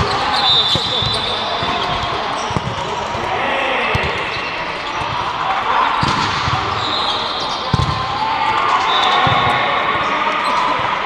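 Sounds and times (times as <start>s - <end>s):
volleyball being hit and bouncing: 0.0s - 3.3s, 3.9s - 5.4s, 6.0s - 6.9s, 7.6s - 8.2s
players calling out: 0.0s - 11.0s.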